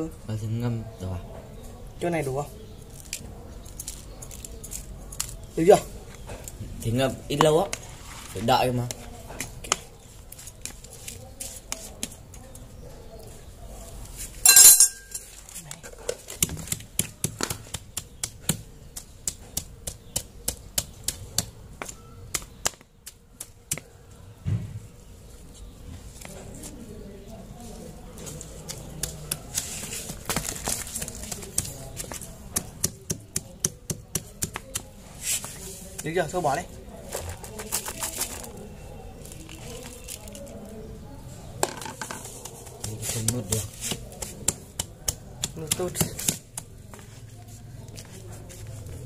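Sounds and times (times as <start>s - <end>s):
fingers mixing salt through fruit: 42.2s - 46.8s.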